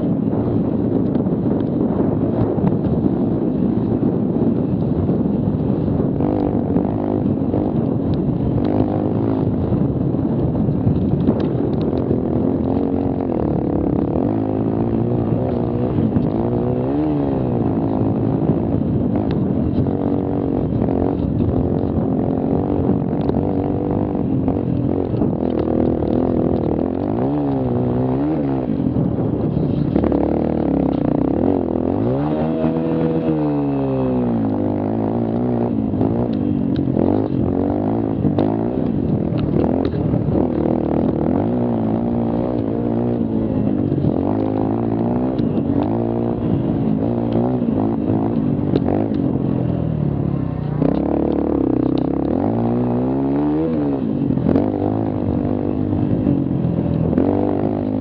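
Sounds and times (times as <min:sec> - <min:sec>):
small engine revving: 0:06.1 - 0:10.2, 0:10.9 - 0:58.0.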